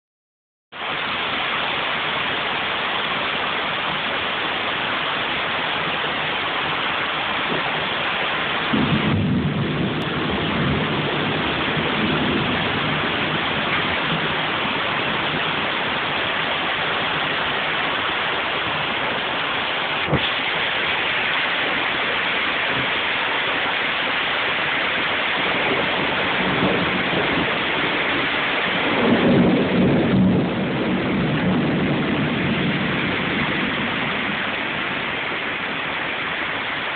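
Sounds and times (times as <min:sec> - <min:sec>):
heavy rain hiss: 0:00.7 - 0:36.9
deep rumble: 0:08.7 - 0:23.0, 0:25.2 - 0:35.7.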